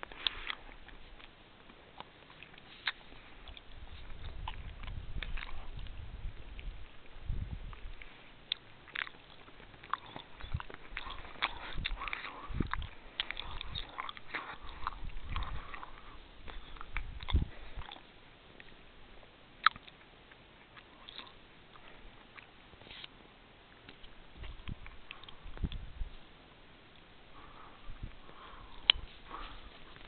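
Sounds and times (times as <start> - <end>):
wind puffs on microphone: 3.7 - 8.0, 10.4 - 13.9, 14.6 - 17.9, 24.4 - 26.2, 27.8 - 29.8.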